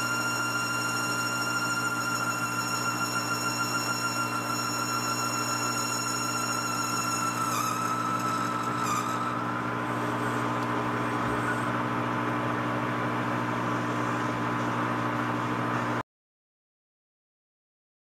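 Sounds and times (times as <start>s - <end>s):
high squealing cutting tone: 0.0s - 12.1s
metal lathe motor hum and whine: 0.0s - 16.0s.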